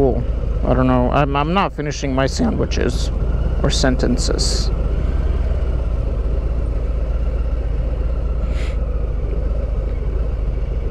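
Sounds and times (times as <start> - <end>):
motorcycle rumbling: 0.0 - 10.9
road noise: 0.0 - 10.9
brief hiss: 8.4 - 8.8.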